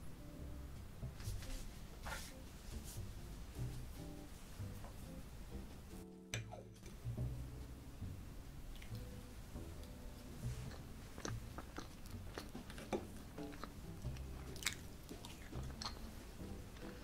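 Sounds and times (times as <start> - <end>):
soft chewing: 8.7 - 17.0.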